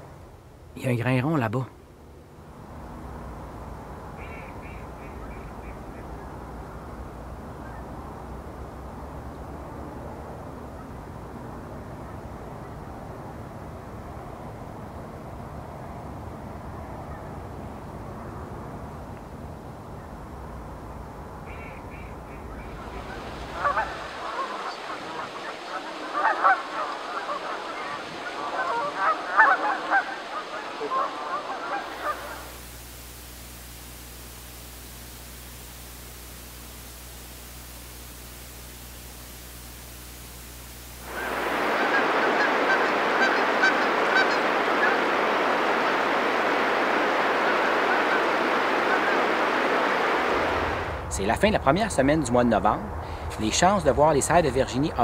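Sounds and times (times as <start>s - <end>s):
low steady rushing noise: 0.0s - 55.0s
geese honking: 21.5s - 32.5s, 41.1s - 50.6s
river rapids rushing: 22.7s - 32.6s, 41.0s - 51.0s.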